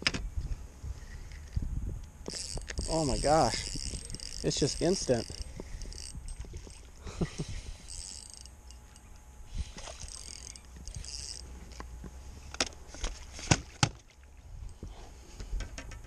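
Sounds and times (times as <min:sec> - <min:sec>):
fishing reel gears whirring: 0:01.0 - 0:12.6.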